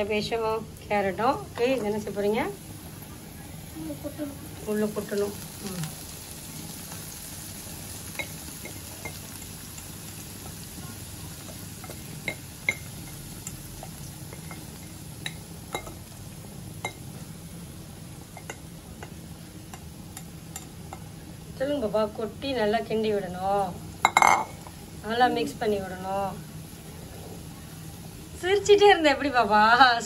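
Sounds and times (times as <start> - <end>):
vegetables sizzling in a wok: 0.0 - 30.0
bowl tapping against pan: 11.4 - 16.0, 18.4 - 21.1.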